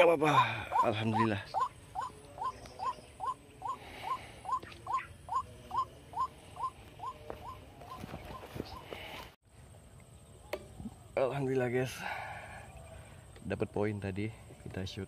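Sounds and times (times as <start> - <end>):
bird calls from small speaker: 0.7 - 8.8.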